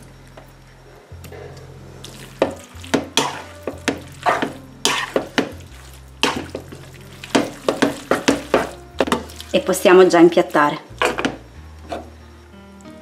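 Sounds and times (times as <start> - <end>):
wooden spoon scraping a pan: 2.3 - 9.6.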